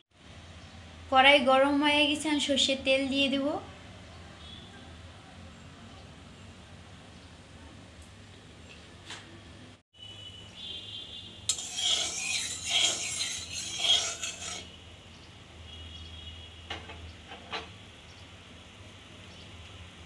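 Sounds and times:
spatula scraping metal pan: 11.5s - 14.7s.

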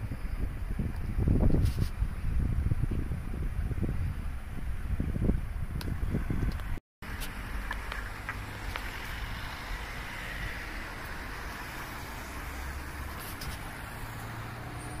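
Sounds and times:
cars driving past: 6.7s - 15.0s.

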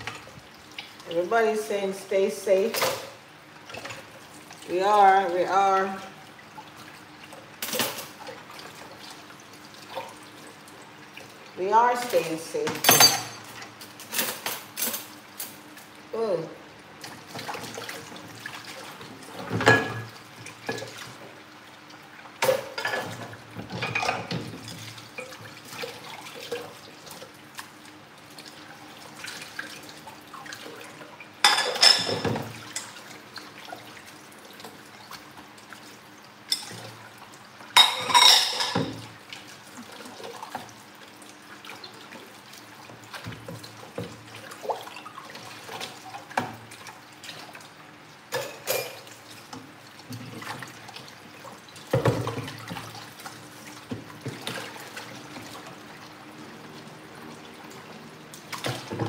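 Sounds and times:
dishes and pans clattering: 12.7s - 13.5s, 19.4s - 20.9s, 22.4s - 24.7s, 31.4s - 33.0s, 37.8s - 39.1s, 48.3s - 49.1s
tap water running into sink: 48.3s - 59.0s.

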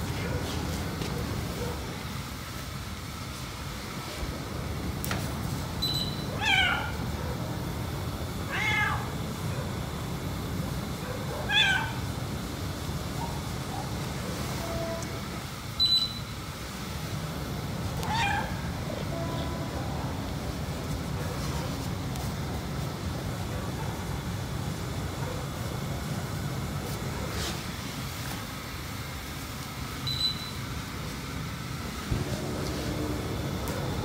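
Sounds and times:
cat meowing: 6.3s - 7.0s, 8.5s - 9.1s, 11.5s - 12.0s, 18.0s - 18.6s.

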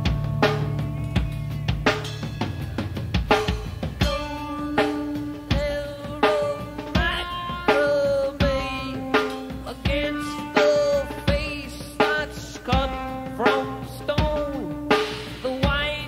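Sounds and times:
rock band playing: 0.0s - 16.0s.

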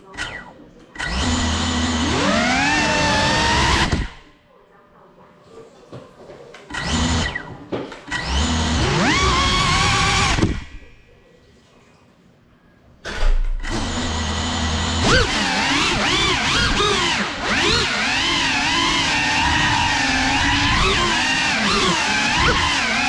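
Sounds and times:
drone motors whining: 0.2s - 4.3s, 8.1s - 10.8s, 13.6s - 23.0s.

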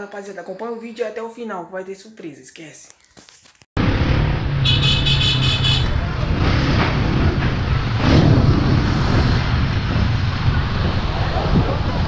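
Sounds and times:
street traffic: 3.8s - 12.0s
wind on microphone: 6.6s - 12.0s.

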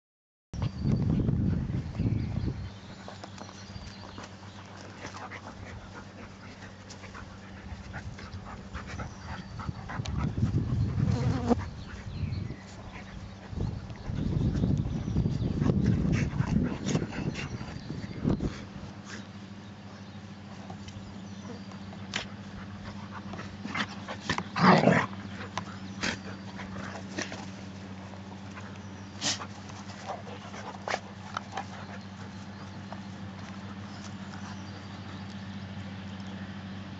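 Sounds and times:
steady low hum: 0.6s - 36.9s
dogs scuffling in grass: 1.6s - 16.6s, 17.2s - 36.9s
dogs growling and vocalizing: 21.2s - 32.7s.

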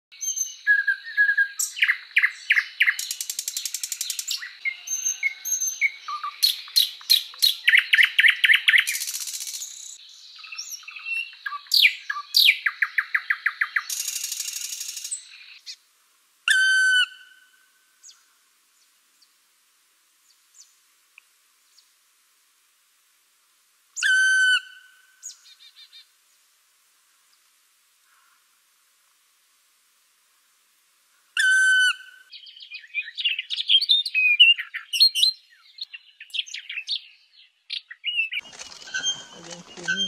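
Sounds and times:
nightingale singing: 0.1s - 15.8s, 16.5s - 18.3s, 24.0s - 26.0s, 31.4s - 40.0s
faint ticks: 21.1s - 21.9s.

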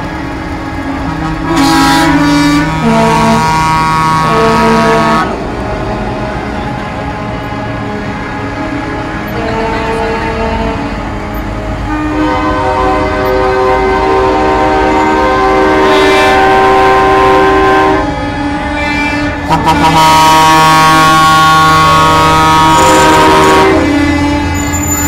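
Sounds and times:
diesel trucks rumbling past: 0.0s - 25.0s
truck air horn chords: 0.9s - 25.0s.

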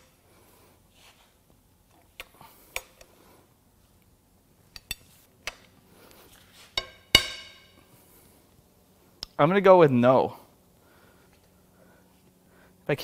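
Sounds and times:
ringing metal clang: 6.8s - 7.8s.

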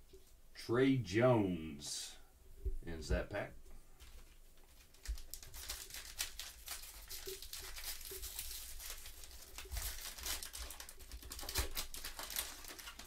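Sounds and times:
plastic wrapper crinkling and tearing: 4.0s - 13.0s.

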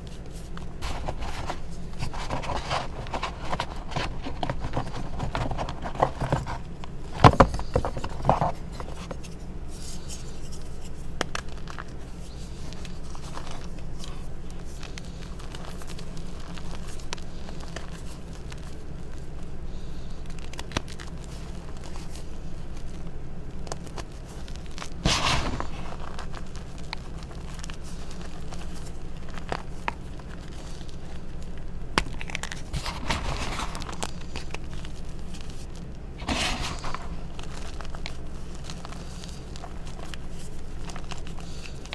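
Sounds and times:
hands crunching chalk: 0.0s - 41.9s.

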